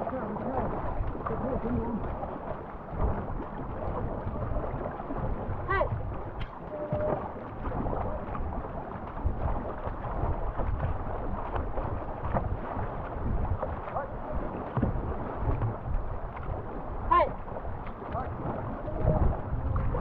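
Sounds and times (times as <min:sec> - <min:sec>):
paddle strokes dipping: 0:00.0 - 0:20.0
river water rushing and splashing: 0:00.0 - 0:20.0
wind buffeting microphone: 0:00.0 - 0:20.0.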